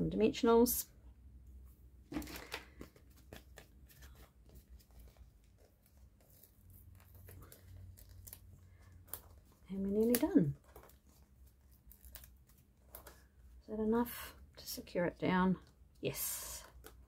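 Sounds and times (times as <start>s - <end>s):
paper rustling: 2.1s - 13.6s.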